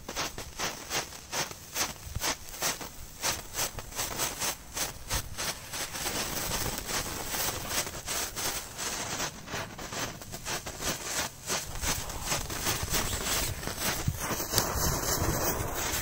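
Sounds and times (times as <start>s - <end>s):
firework hissing and crackling: 0.0s - 16.0s.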